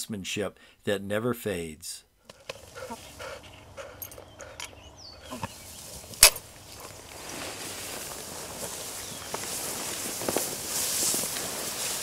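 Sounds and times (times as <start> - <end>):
rustling through wet grass: 5.1 - 12.0
sharp click: 6.2 - 6.4.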